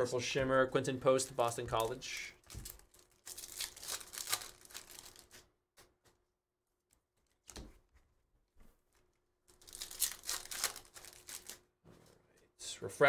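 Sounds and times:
foil wrappers crinkling and tearing: 0:01.8 - 0:05.5, 0:09.5 - 0:11.6.

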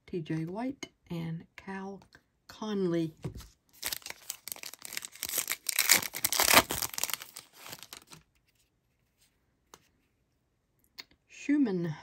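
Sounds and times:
foil wrapper tearing and crinkling: 0:03.8 - 0:08.2.

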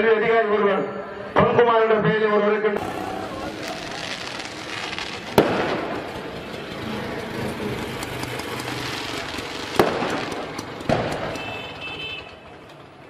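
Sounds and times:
fireworks bursting: 0:02.8 - 0:12.3.

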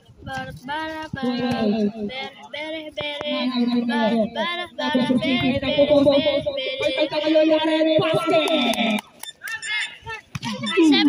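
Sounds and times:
high-pitched voice singing: 0:00.3 - 0:07.6.

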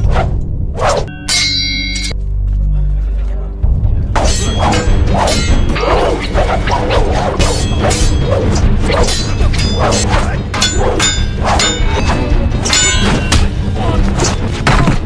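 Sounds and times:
metallic sword clangs: 0:01.1 - 0:02.2, 0:04.2 - 0:06.0, 0:08.9 - 0:13.5
sword swishes: 0:04.2 - 0:13.4.

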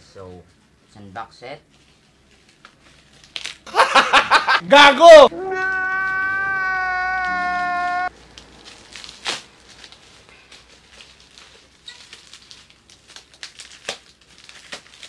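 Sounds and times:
plastic packaging crackling: 0:01.7 - 0:03.7, 0:08.2 - 0:15.0
packaging snapping: 0:08.6 - 0:15.0.

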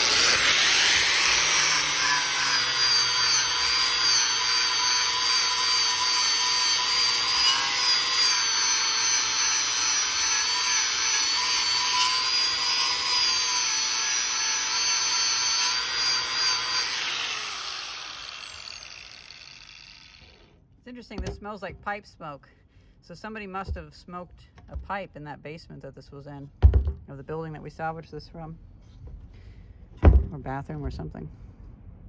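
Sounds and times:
abrasive disc rasping on wood: 0:00.0 - 0:20.2
angle grinder motor whining: 0:00.0 - 0:20.6.

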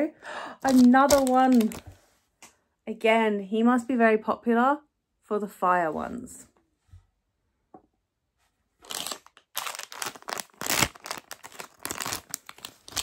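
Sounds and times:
wrapper crinkling and tearing: 0:00.6 - 0:01.9, 0:08.8 - 0:13.0.

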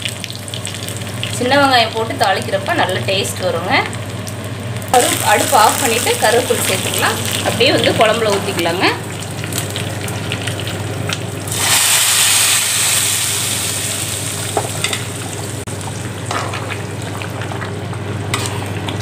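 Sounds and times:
hot oil sizzling hiss: 0:04.9 - 0:10.8, 0:11.4 - 0:15.7
low crackle with clicks: 0:09.2 - 0:11.3.

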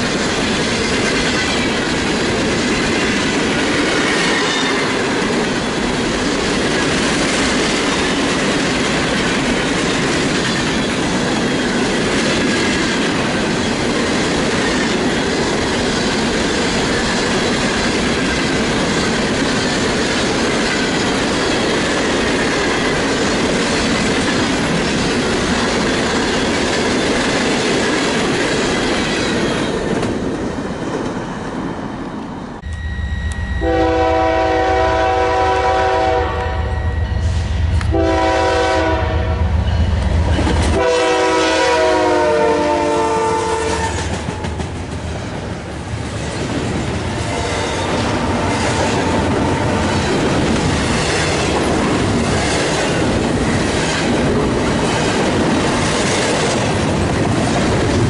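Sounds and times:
diesel locomotive rumbling: 0:00.0 - 0:58.0
train horn blasts: 0:32.6 - 0:39.6, 0:40.7 - 0:44.1
freight cars rattling on rails: 0:43.7 - 0:58.0.

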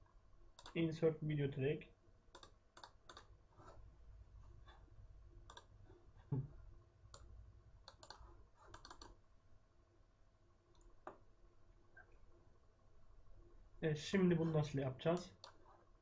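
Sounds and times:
computer mouse clicks: 0:00.6 - 0:00.8, 0:02.3 - 0:03.8, 0:05.4 - 0:05.7, 0:07.1 - 0:09.2, 0:15.4 - 0:15.8.

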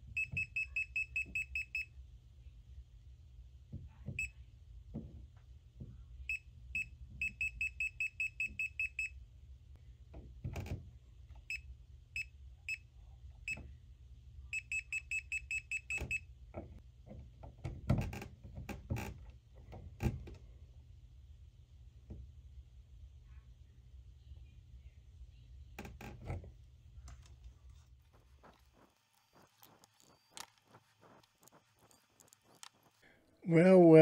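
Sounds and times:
multimeter short high beeps: 0:00.2 - 0:01.9, 0:06.8 - 0:09.1, 0:14.6 - 0:16.1
test probe tips clicking: 0:28.4 - 0:33.0.

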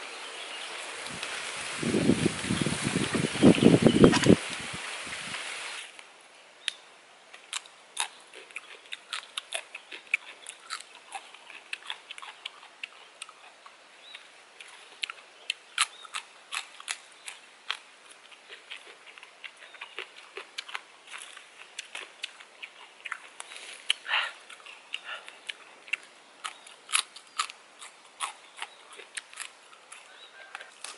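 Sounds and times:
pea pods snapping open: 0:26.4 - 0:30.9.

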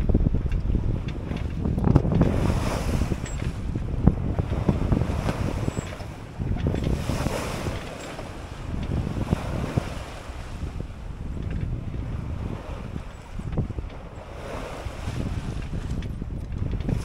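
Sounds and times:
water rushing along hull: 0:00.0 - 0:17.0
waves splashing: 0:00.0 - 0:17.0
wind buffeting microphone: 0:00.0 - 0:17.0.

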